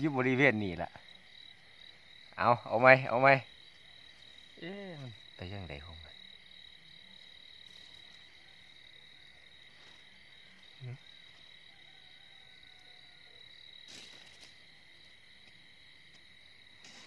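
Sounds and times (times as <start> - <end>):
crickets chirring: 0.0 - 17.0
grass rustling: 7.1 - 8.7, 9.3 - 11.5, 13.7 - 17.0.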